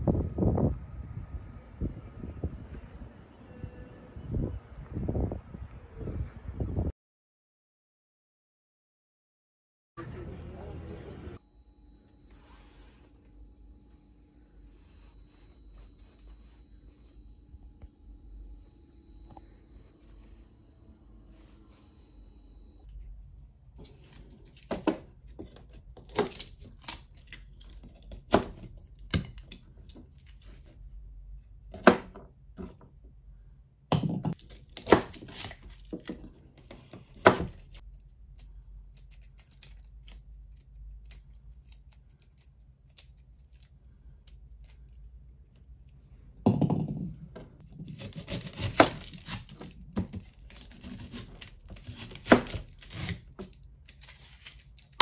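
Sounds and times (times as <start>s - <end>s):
papery skins crackling and tearing: 23.8s - 31.8s, 34.4s - 46.0s, 47.7s - 55.0s
knife thump: 46.4s - 47.1s.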